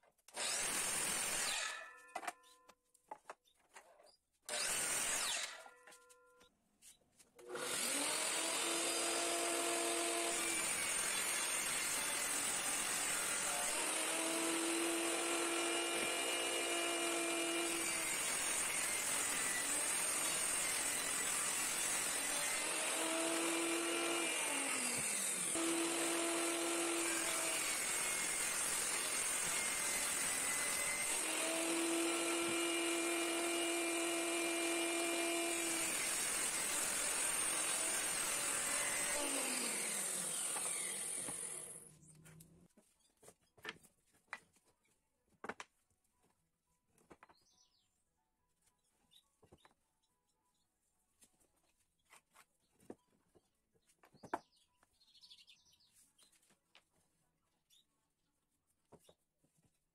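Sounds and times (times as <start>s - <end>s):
table saw cutting wood: 0.3s - 2.0s, 4.5s - 5.7s, 7.4s - 41.9s.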